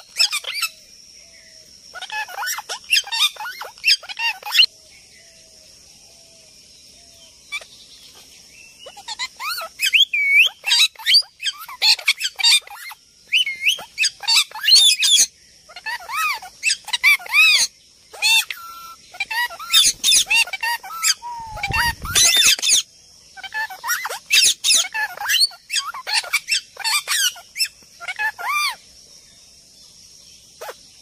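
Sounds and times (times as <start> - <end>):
parakeets screeching: 0.0 - 0.8, 1.9 - 4.7, 8.8 - 28.8, 30.6 - 30.8
faint high hiss: 19.7 - 23.3.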